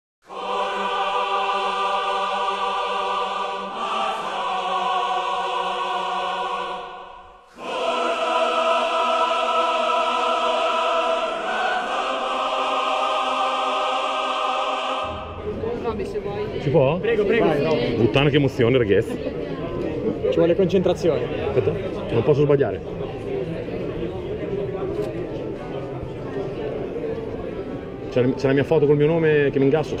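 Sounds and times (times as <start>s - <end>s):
choir-like held chords: 0.2s - 16.8s.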